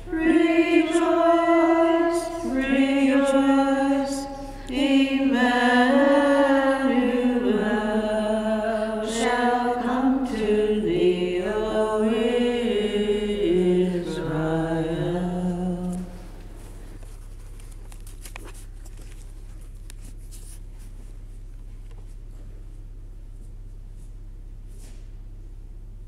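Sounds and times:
woman singing a hymn: 0.0s - 16.3s
faint clicks and rustling: 15.9s - 22.2s.

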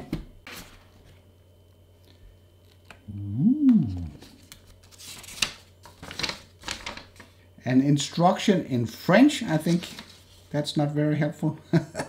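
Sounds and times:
hum rising and falling in pitch: 3.1s - 4.4s
papery rustle: 4.2s - 7.3s, 9.6s - 10.5s.

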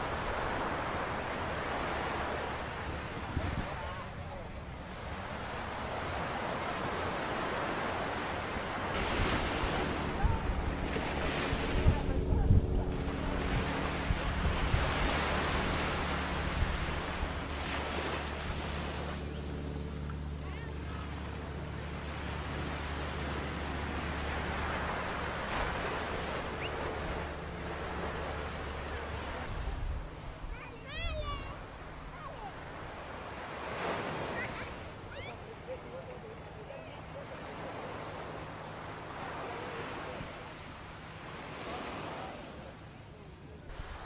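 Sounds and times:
waves washing on sandy beach: 0.0s - 44.0s
wind buffeting microphone: 8.9s - 17.8s.

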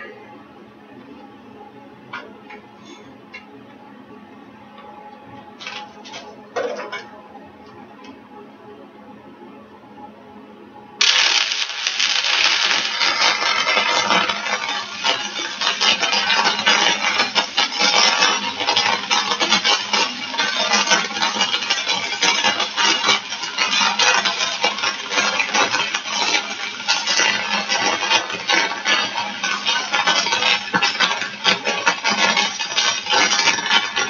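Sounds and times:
welding arc crackling: 5.6s - 6.2s, 11.0s - 34.0s.

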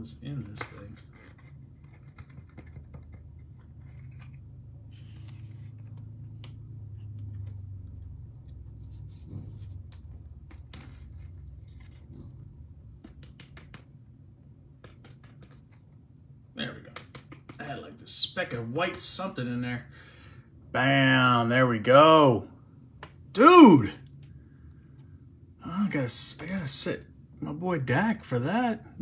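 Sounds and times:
low steady hum: 0.0s - 29.0s
card handling clicks and scraping: 0.3s - 7.8s, 9.3s - 12.4s, 14.7s - 16.0s.

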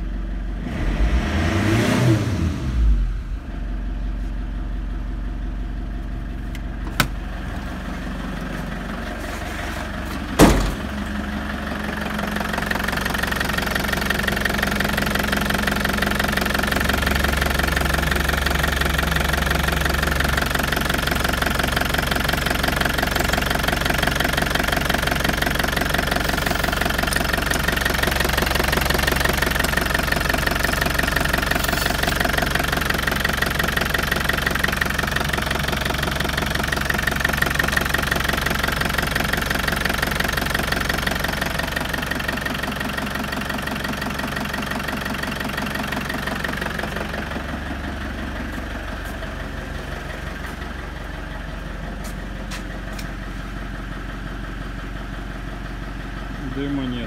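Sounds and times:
diesel engine idling: 0.0s - 1.4s, 2.4s - 57.0s.

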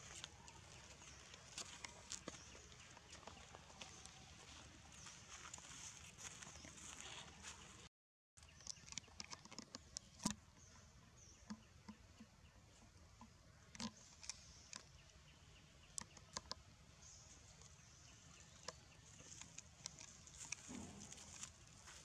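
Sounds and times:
rustles of dry leaves and twigs: 0.0s - 10.4s, 16.2s - 22.0s.

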